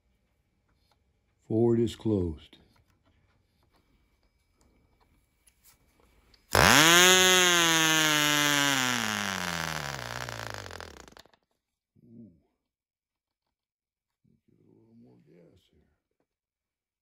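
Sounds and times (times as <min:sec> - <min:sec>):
model glow engine buzzing: 0:06.5 - 0:11.2.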